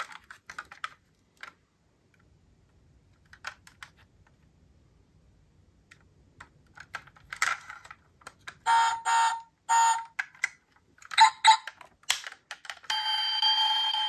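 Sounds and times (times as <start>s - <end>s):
electronic toy tones: 8.7s - 10.2s, 11.2s - 11.7s, 12.9s - 14.0s.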